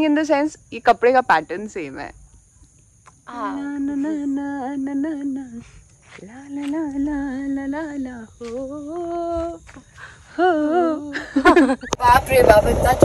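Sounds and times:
woman singing long notes: 3.2 - 11.3.

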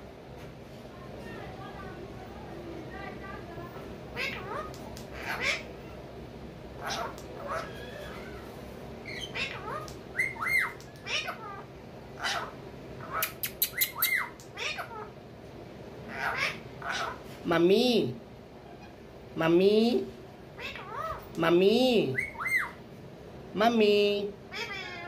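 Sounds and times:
parakeets squawking and chirping: 4.1 - 6.1, 6.8 - 15.2, 16.1 - 17.3, 20.6 - 21.3, 22.2 - 22.8
parakeet sharp clicks: 13.2 - 14.6.

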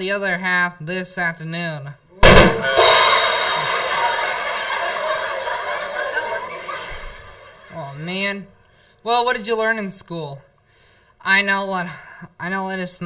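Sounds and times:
cymbal crash ringing: 2.2 - 5.0.

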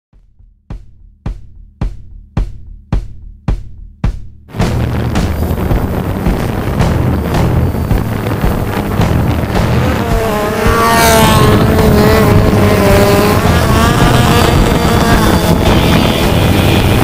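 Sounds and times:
motorcycle engine revving: 4.5 - 17.0.

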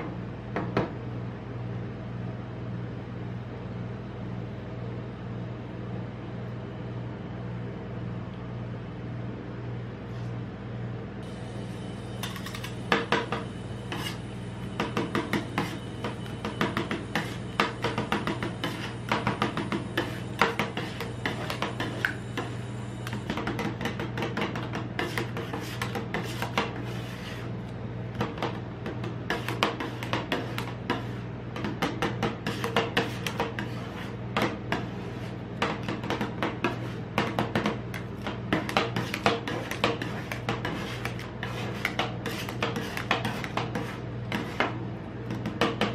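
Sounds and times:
steady low hum: 0.0 - 45.9
metal spatulas chopping on plate: 28.2 - 33.8.

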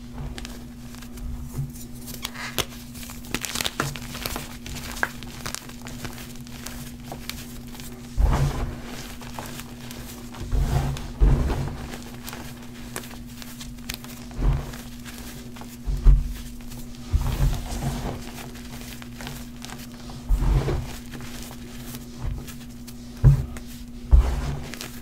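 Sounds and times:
steady low hum: 0.0 - 25.0
chalk crunching and crumbling: 1.8 - 25.0.

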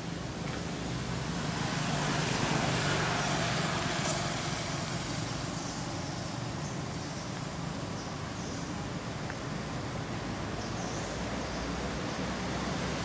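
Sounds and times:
vehicle passing: 1.2 - 5.5.

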